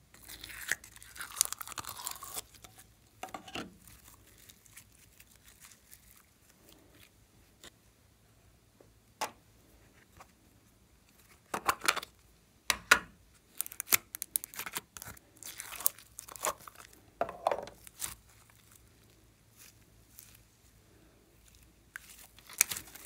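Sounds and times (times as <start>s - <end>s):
slime crackling and tearing: 0.2s - 2.9s, 3.8s - 7.1s, 13.5s - 17.0s, 17.8s - 18.9s, 21.4s - 23.0s.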